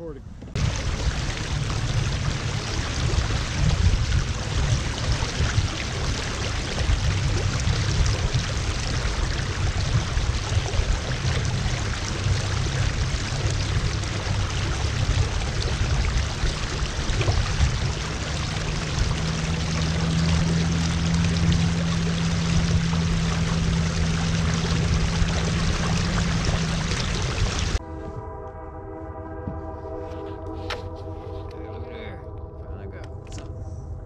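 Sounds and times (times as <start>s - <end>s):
low rumble: 0.0s - 34.0s
steady low hum: 0.1s - 34.0s
water splashing along kayak hull: 0.4s - 27.8s.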